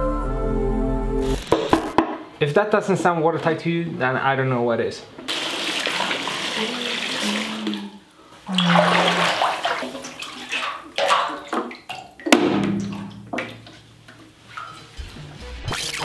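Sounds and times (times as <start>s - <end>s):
water splashing in a bathtub: 5.3s - 15.2s.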